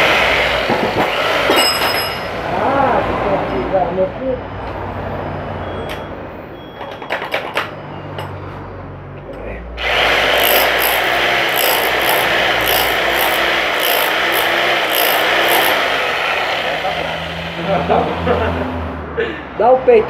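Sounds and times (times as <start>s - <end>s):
rotary hammer drill running: 9.8s - 17.4s.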